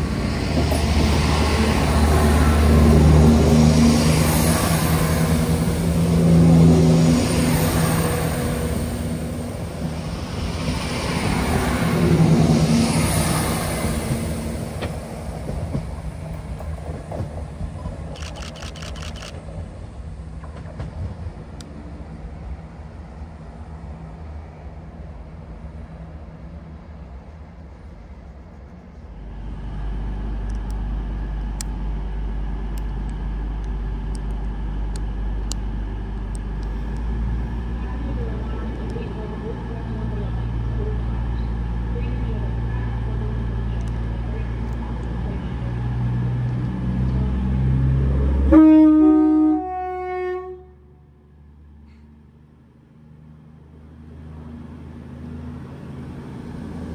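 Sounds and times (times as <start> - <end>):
diesel train engines: 0.0 - 56.9
sharp clicks: 18.1 - 19.4.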